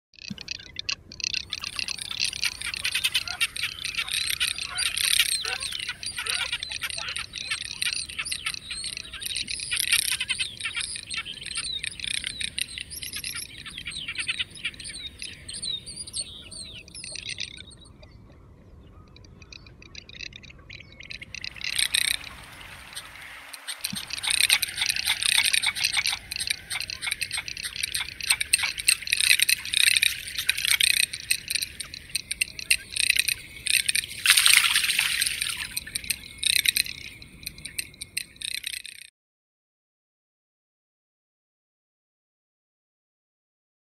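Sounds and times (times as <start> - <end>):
duck rattling call: 0.2 - 15.6, 19.4 - 39.1.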